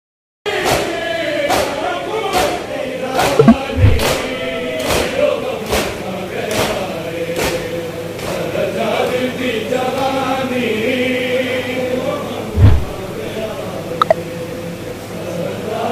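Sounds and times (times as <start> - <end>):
men chanting in unison: 0.5 - 3.2, 4.2 - 13.6
palms slapping chests: 3.4 - 4.2.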